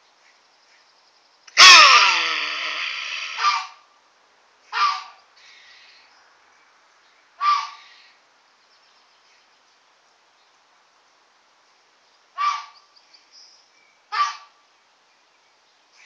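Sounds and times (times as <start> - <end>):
capybara gruff barks: 1.6 - 3.8, 4.7 - 5.2, 7.4 - 7.8, 12.4 - 12.7, 14.1 - 14.5.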